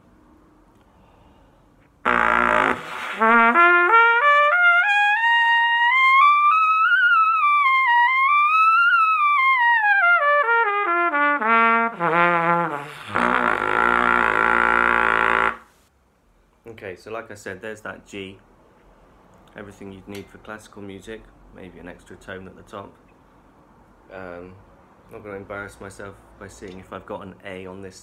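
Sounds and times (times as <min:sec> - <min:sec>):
buzzy low trumpet note: 0:02.0 - 0:07.9, 0:09.9 - 0:15.7
trumpet playing slurred run: 0:02.0 - 0:15.7.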